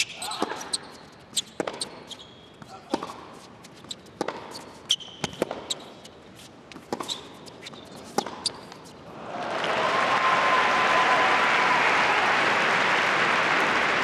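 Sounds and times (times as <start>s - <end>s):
sneakers squeaking on court: 0.0s - 9.0s
tennis ball bouncing: 1.4s - 9.0s
racket striking tennis ball: 1.5s - 8.9s
crowd applauding: 9.2s - 14.0s.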